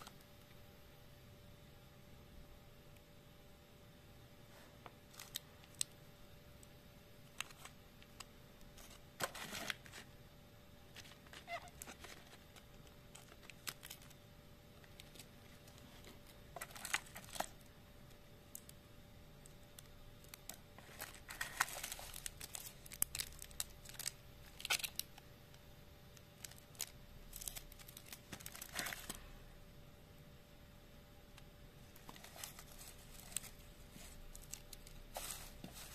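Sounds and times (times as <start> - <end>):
paper and wrappers rustling: 4.5 - 5.9, 7.2 - 10.2, 10.9 - 14.2, 14.8 - 17.7, 19.8 - 25.2, 26.4 - 29.3, 31.8 - 35.9.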